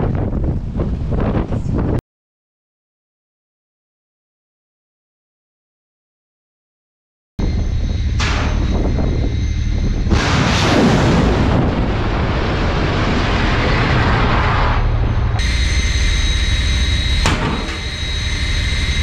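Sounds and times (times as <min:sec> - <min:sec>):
faint whine: 0:07.4 - 0:19.0
sharp crack: 0:08.2 - 0:08.8, 0:10.1 - 0:15.5
missile launch blast: 0:08.2 - 0:15.8
rushing roar: 0:10.1 - 0:19.0.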